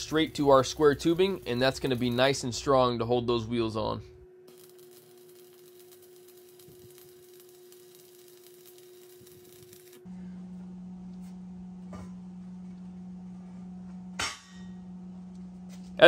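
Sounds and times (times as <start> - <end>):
welding arc crackle: 0.0 - 2.8, 4.5 - 10.1
steady low hum: 0.0 - 16.0.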